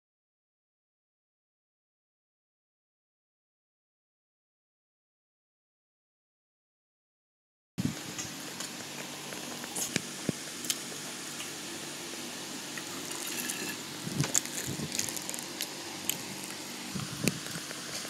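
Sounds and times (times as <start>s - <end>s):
steady background hiss: 7.8s - 18.0s.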